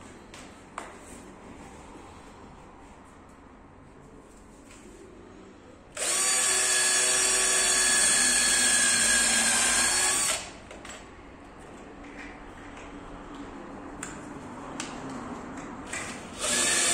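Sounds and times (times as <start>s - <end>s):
cordless drill boring into wood: 6.0s - 10.5s, 16.3s - 16.9s.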